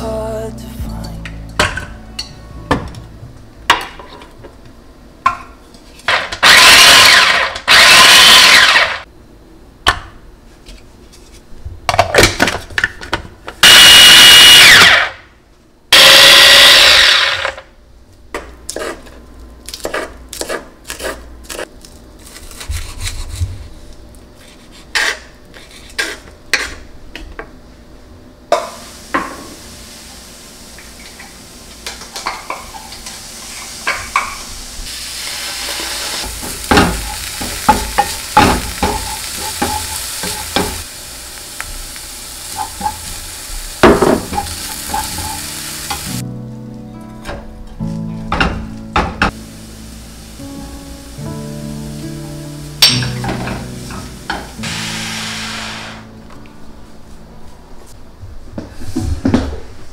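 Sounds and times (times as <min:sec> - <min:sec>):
vegetables sizzling in a frying pan: 0:06.4 - 0:09.0, 0:13.6 - 0:15.0, 0:15.9 - 0:17.4, 0:28.6 - 0:46.2, 0:49.3 - 0:56.1.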